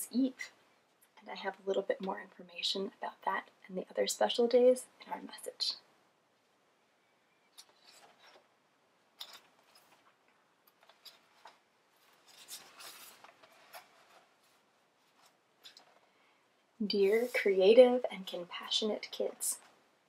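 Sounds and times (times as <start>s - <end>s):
book and paper rustling: 7.6s - 8.5s, 9.1s - 16.1s, 17.0s - 17.9s.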